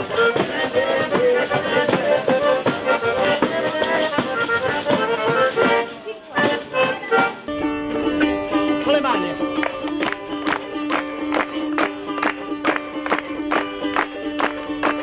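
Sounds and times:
frame drum beating and jingling: 0.0s - 9.4s
button accordion dance tune: 0.0s - 15.0s
plucked string instrument: 0.0s - 15.0s.

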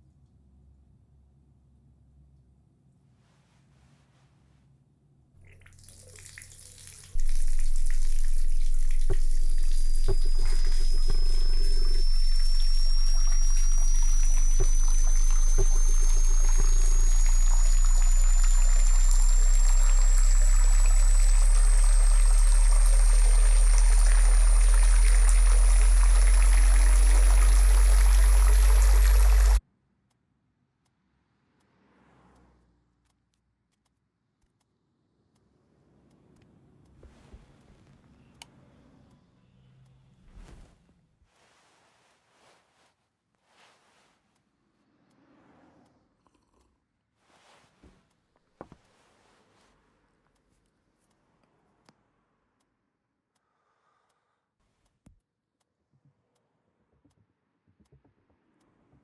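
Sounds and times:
tap water running into sink: 5.4s - 29.6s
thin high tone rising in pitch: 7.1s - 29.6s
deep drone: 7.2s - 29.6s.

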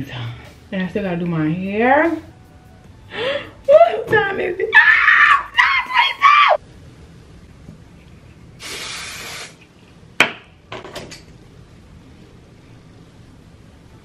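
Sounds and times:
spray bottle hissing spray: 8.6s - 9.6s.

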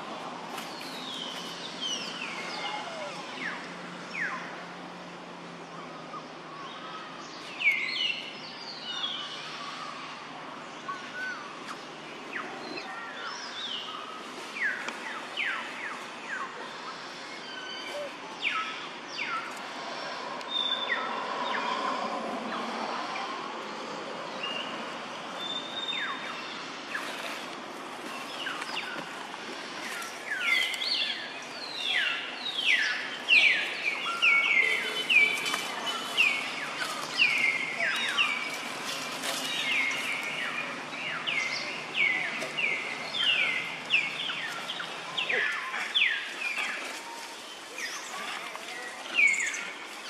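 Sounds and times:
birds calling: 24.4s - 50.0s.

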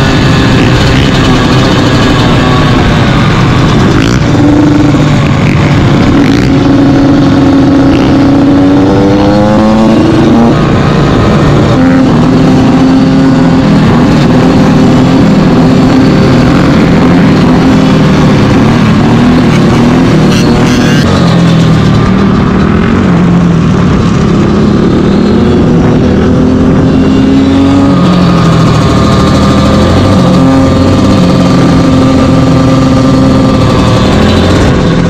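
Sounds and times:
dirt bike engines revving: 0.0s - 35.0s.

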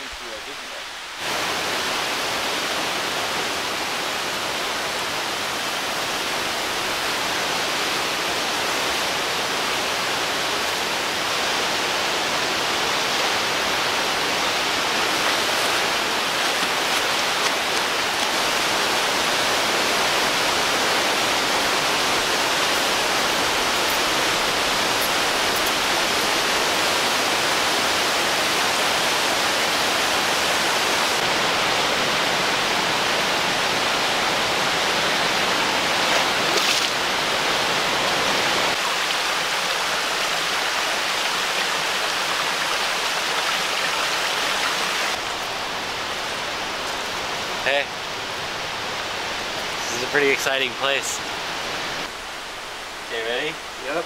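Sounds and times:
river rapids rushing over rocks: 0.0s - 54.0s.

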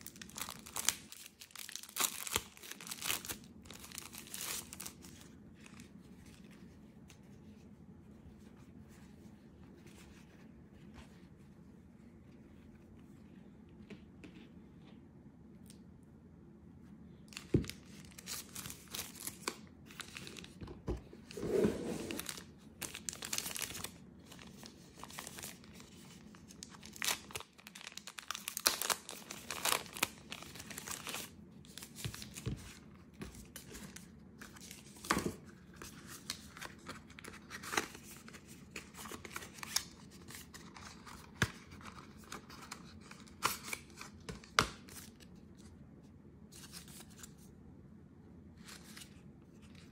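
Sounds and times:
plastic bag crinkling and tearing: 0.0s - 5.8s, 17.3s - 20.6s, 22.1s - 32.4s.

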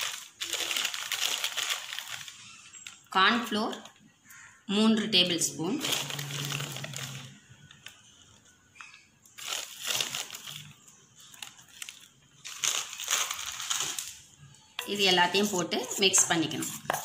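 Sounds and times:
powder scraping and rustling: 5.8s - 8.0s, 9.4s - 14.2s.

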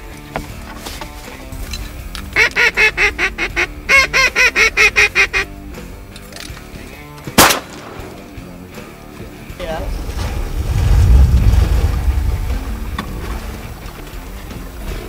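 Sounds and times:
background music: 0.0s - 15.0s
duck call quacking: 2.2s - 5.8s
sharp bang: 7.4s - 8.6s.

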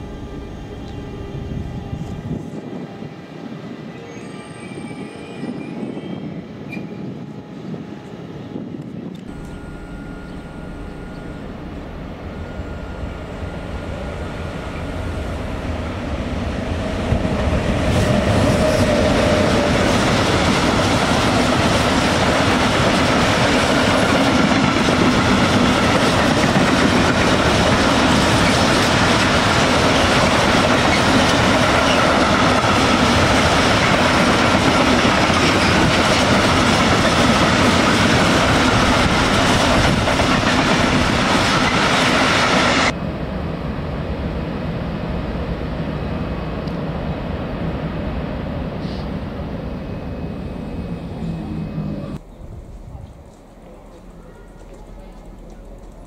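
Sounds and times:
train wheels on rails: 8.6s - 43.0s.

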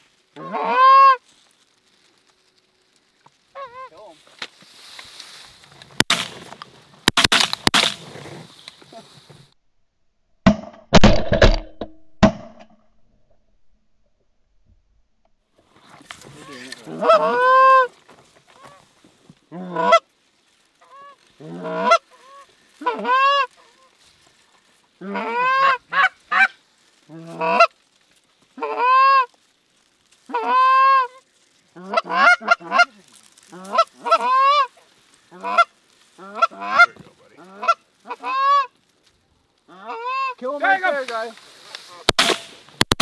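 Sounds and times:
goose honking and clucking: 0.4s - 1.2s, 3.5s - 4.1s, 16.3s - 18.9s, 19.5s - 20.1s, 20.8s - 27.8s, 28.5s - 29.4s, 30.2s - 38.8s, 39.7s - 41.0s.

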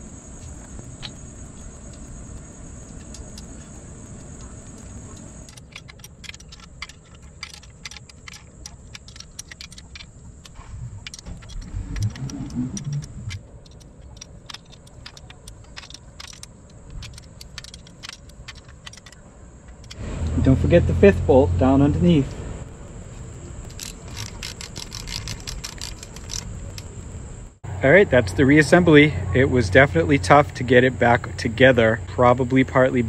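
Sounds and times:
high insect buzz: 0.0s - 28.0s
wrench clinking on bolts: 4.7s - 20.0s, 23.6s - 27.0s.

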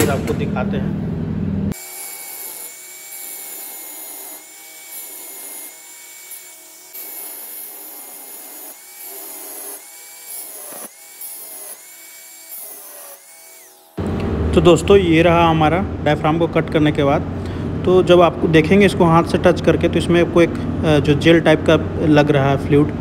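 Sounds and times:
angle grinder cutting metal: 1.7s - 14.0s.

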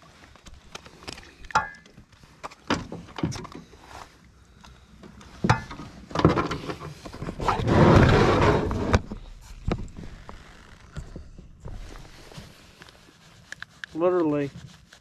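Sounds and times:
knocks and thumps in a boat: 5.2s - 12.3s.

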